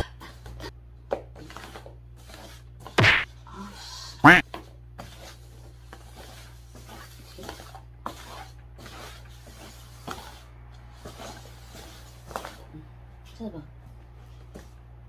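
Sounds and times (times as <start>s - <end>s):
paper cups tapping and scraping: 4.5s - 12.7s.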